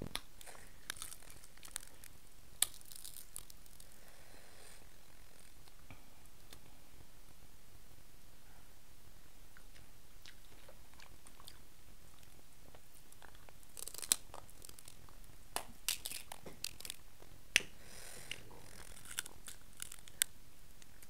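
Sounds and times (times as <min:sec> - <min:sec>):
crab shell cracking: 0:00.1 - 0:04.0, 0:13.1 - 0:17.0, 0:18.3 - 0:21.0
chewing: 0:09.6 - 0:15.1.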